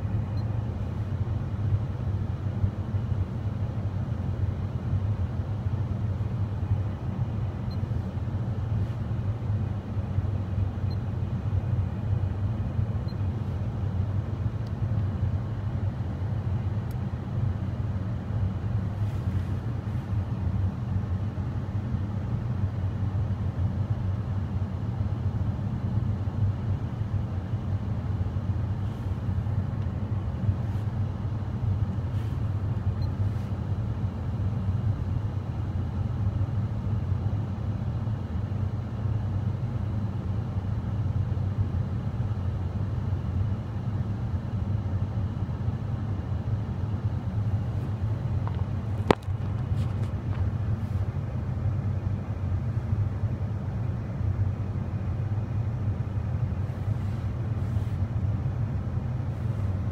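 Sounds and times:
low rumble in car cabin: 0.0s - 59.9s.

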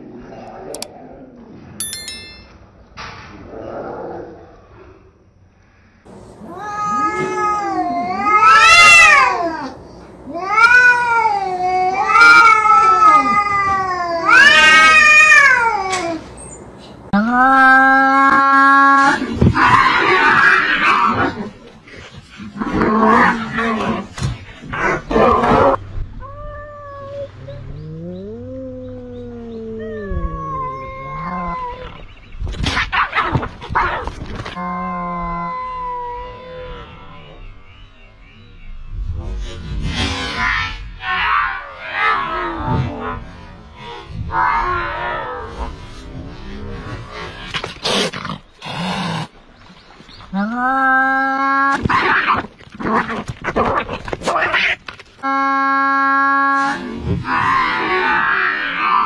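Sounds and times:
cats screeching and fighting: 6.2s - 16.6s, 18.1s - 21.6s, 28.3s - 37.0s, 50.8s - 59.0s
cats yowling: 6.3s - 16.3s, 25.2s - 32.1s.

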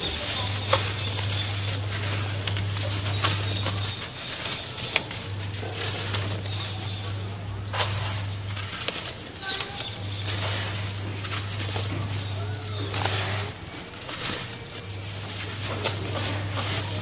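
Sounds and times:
crumbs pattering into tub: 0.0s - 17.0s
wet cement crumbled by hand: 0.0s - 17.0s.

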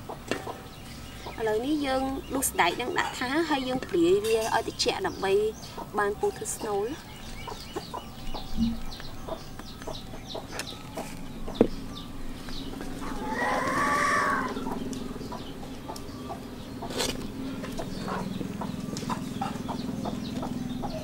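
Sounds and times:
chickens clucking: 0.0s - 11.9s, 12.5s - 21.0s
rooster crowing: 13.0s - 14.8s.

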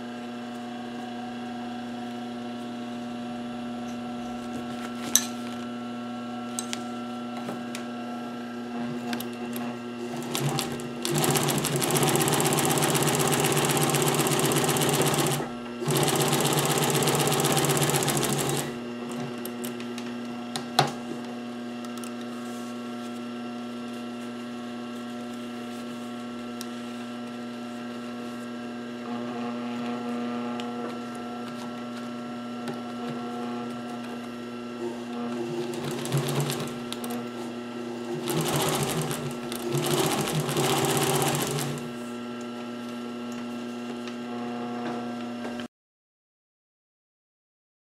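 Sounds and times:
sewing machine stitching: 10.0s - 18.8s, 35.4s - 36.9s, 38.1s - 41.9s.

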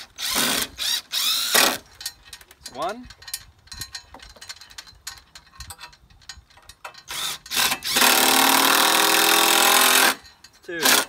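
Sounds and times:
cordless drill driving a screw: 0.0s - 1.8s, 7.1s - 10.2s
light clicks and rattles: 1.9s - 7.1s.

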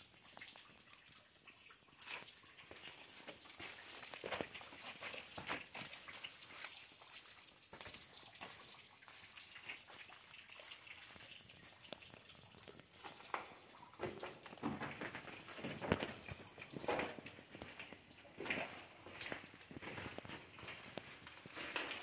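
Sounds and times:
footsteps on rock and leaves: 2.8s - 6.0s, 14.6s - 22.0s.

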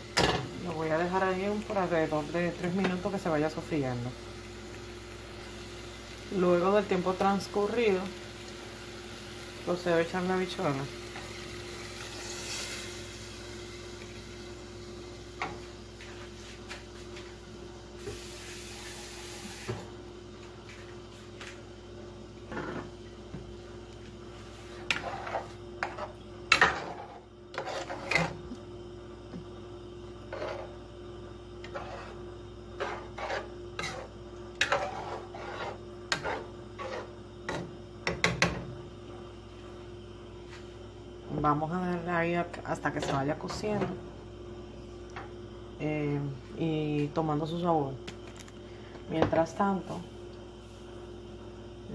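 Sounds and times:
steady low hum: 0.0s - 51.9s
spatula scraping a saucepan: 24.4s - 28.4s, 30.3s - 30.8s, 31.6s - 37.6s.

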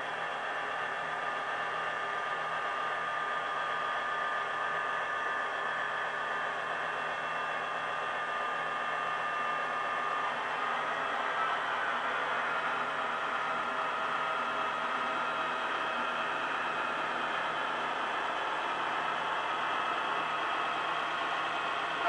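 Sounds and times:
thin whine: 6.0s - 22.0s.

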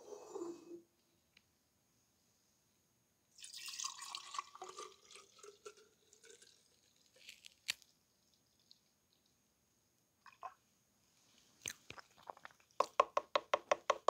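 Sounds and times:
milk pouring into a pitcher: 3.4s - 7.2s.

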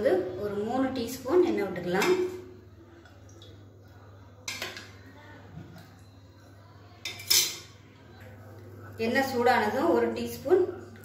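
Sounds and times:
kitchenware clinking on frying pan: 7.0s - 7.8s.

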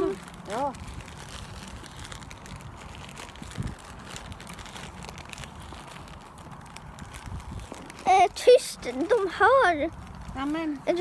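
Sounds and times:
light crackling and crinkling: 0.0s - 11.0s.

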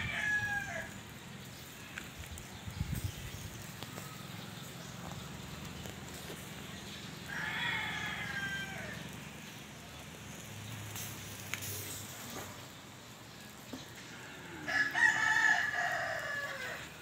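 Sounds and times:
rooster crowing: 0.0s - 1.0s, 7.3s - 9.2s, 14.5s - 17.0s.

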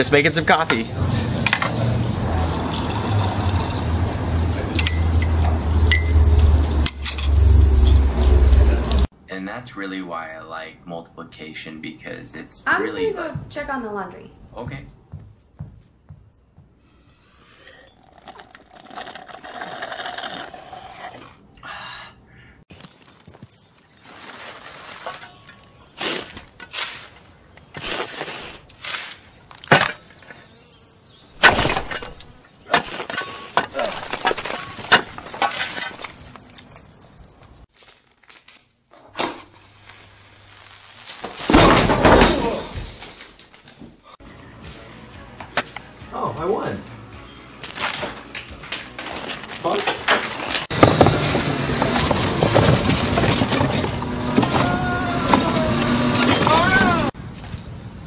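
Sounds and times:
shovel digging loose soil: 24.1s - 29.9s.

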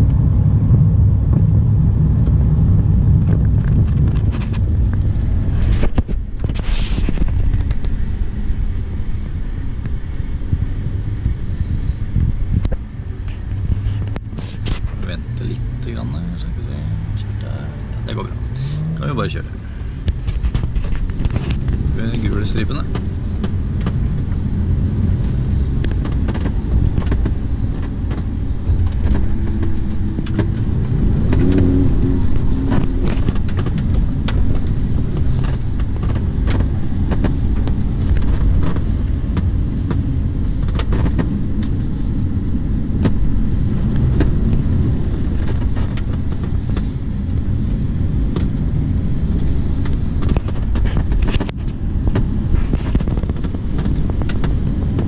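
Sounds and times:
car engine low rumble: 0.0s - 55.0s
road noise inside car: 0.0s - 55.0s.

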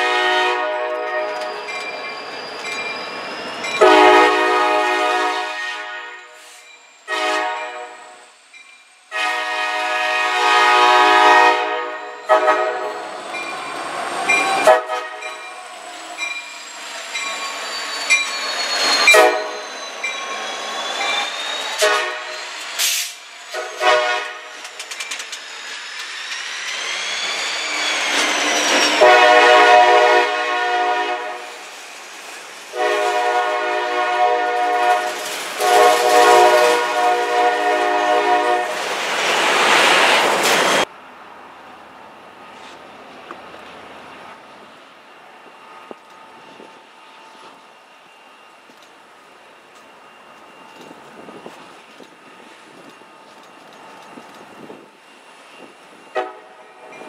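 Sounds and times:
locomotive horn blasts: 0.0s - 1.5s, 3.8s - 6.5s, 7.1s - 8.2s, 9.1s - 13.0s, 14.6s - 15.3s, 19.1s - 19.6s, 21.8s - 22.3s, 23.5s - 24.5s, 29.0s - 31.6s, 32.7s - 38.8s, 56.1s - 57.0s
train wheel squeal: 1.0s - 10.2s, 11.8s - 33.4s, 39.3s - 40.9s, 42.4s - 42.9s, 45.0s - 57.0s
train wheels clicking: 12.1s - 30.0s, 34.6s - 38.0s, 49.7s - 57.0s.

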